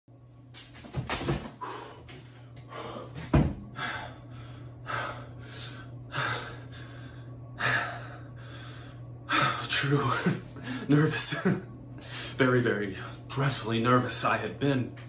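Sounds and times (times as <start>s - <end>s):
man breathing quickly: 1.6s - 9.6s.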